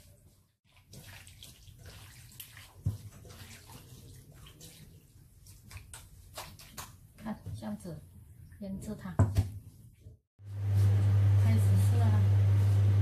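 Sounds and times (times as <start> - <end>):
hands squelching meat in marinade: 0.7 - 7.1.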